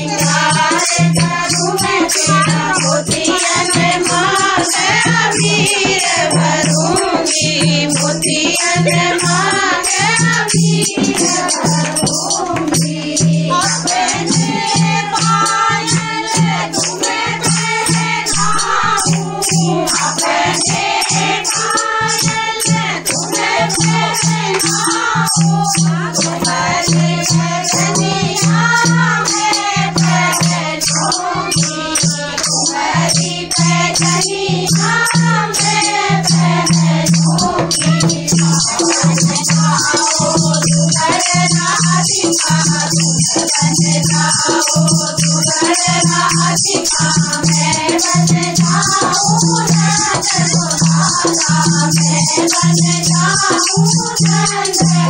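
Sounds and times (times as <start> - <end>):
women singing together: 0.0 - 55.0
hand clapping: 36.7 - 54.8.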